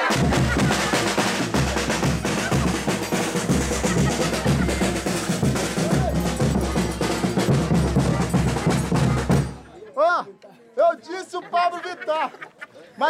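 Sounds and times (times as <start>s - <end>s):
snare drum rolls: 0.0s - 9.6s
bass drum pulse: 0.1s - 9.5s.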